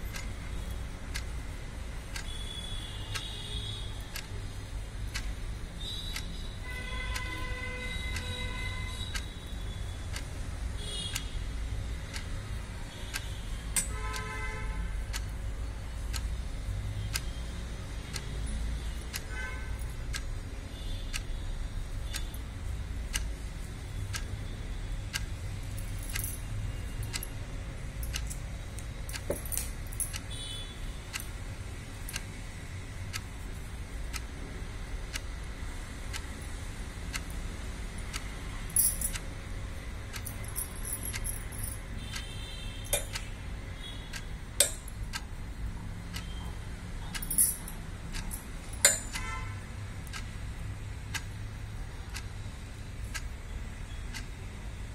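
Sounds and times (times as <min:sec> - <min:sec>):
faint evenly spaced ticking: 0:00.0 - 0:54.9
steady low hum: 0:00.0 - 0:54.9
glass bangles clinking: 0:25.6 - 0:27.4, 0:29.1 - 0:30.3, 0:38.7 - 0:39.3, 0:40.2 - 0:41.9, 0:42.9 - 0:43.2, 0:47.1 - 0:49.2.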